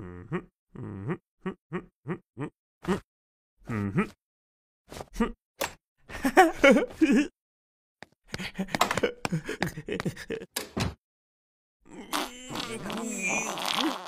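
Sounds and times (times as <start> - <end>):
cartoon moans gasps and grunts: 0.0 - 4.2, 5.0 - 5.4, 11.9 - 14.0.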